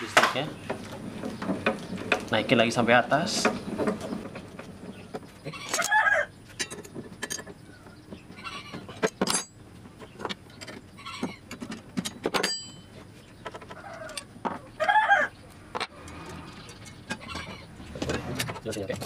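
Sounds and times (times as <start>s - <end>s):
chicken clucking: 5.0s - 6.3s, 7.6s - 9.0s, 16.1s - 17.8s
sharp metal clinks: 12.4s - 13.0s.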